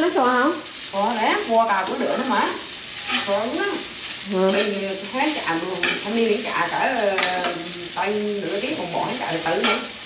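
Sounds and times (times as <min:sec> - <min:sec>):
rice sizzling in a pan: 0:00.0 - 0:10.0
utensil scraping a pan: 0:01.9 - 0:07.6, 0:09.0 - 0:10.0.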